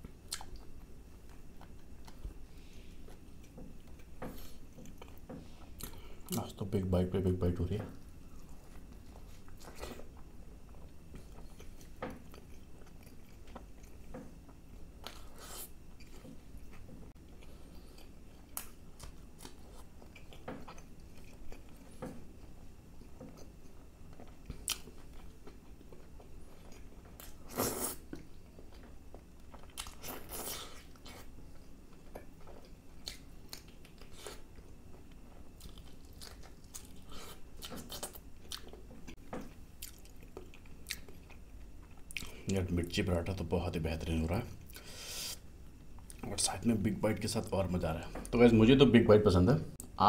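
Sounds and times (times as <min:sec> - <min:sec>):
chewing and biting food: 0:08.3 - 0:42.5.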